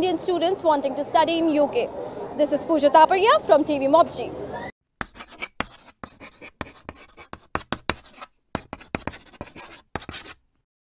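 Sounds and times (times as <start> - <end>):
pen scratching on paper: 5.0 - 10.4.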